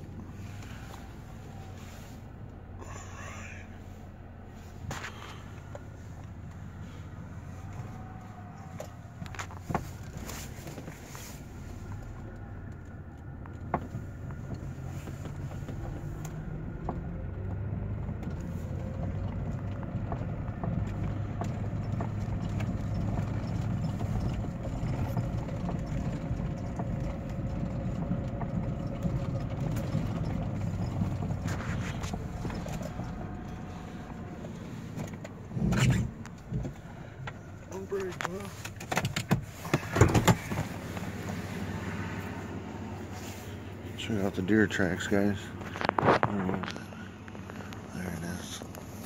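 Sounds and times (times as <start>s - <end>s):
vehicle engine and tyres rumbling: 0.0s - 49.0s
knocks and rattles from bumps: 8.6s - 11.4s, 12.2s - 41.5s.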